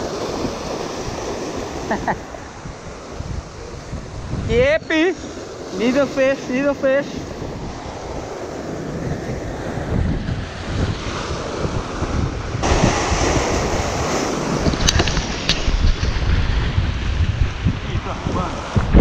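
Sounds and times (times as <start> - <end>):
wind buffeting microphone: 0.0 - 19.0
surf breaking over rocks: 10.2 - 19.0.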